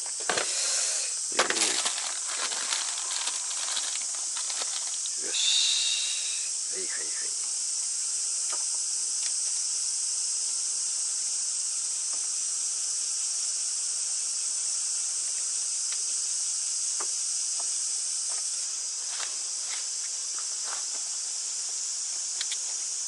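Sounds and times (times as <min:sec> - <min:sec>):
cicadas chorus: 0:00.0 - 0:23.0.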